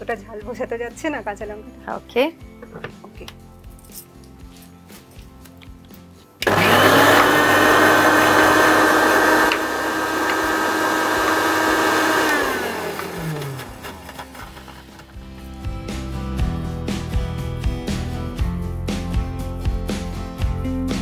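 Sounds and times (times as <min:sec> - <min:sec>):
electric mixer grinder grinding: 0:06.4 - 0:15.6.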